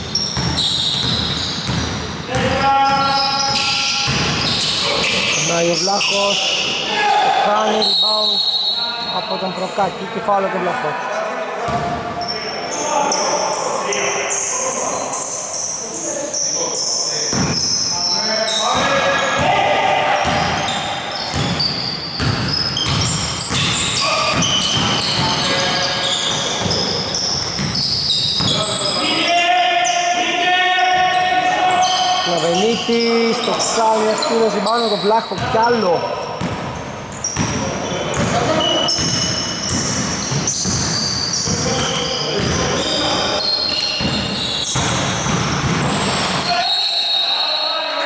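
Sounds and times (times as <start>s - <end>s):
basketball bouncing: 0.0s - 2.6s, 20.2s - 20.6s, 21.3s - 25.6s, 26.6s - 28.6s, 36.4s - 36.8s, 37.4s - 42.6s, 43.9s - 46.4s
sneaker squeaks: 0.0s - 10.0s, 11.6s - 48.0s
basketball bouncing on hardwood floor: 0.4s - 2.0s, 22.2s - 25.4s, 39.0s - 41.6s.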